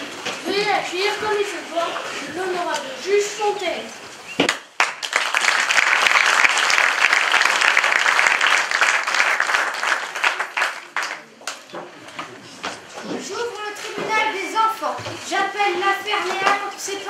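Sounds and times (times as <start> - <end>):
audience applauding: 4.5 - 11.7.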